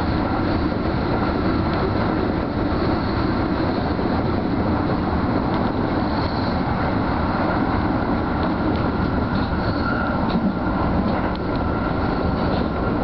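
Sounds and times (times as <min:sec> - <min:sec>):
train wheels on rails: 0:00.0 - 0:13.0.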